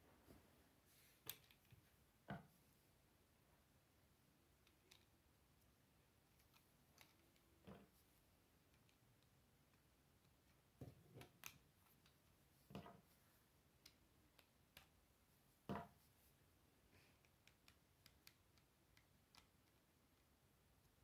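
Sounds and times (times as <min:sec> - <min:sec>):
plastic pieces clicking together: 0:06.3 - 0:07.6.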